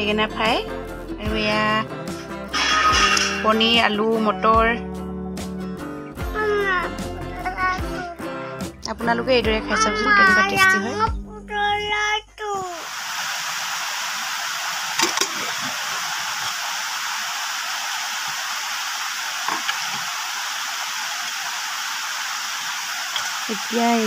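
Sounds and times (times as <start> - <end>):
steady hiss: 12.6 - 24.0.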